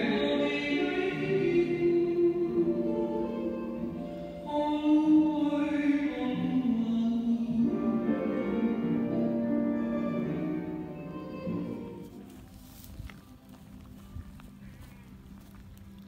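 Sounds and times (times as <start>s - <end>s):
classical singing voices: 0.0s - 12.1s.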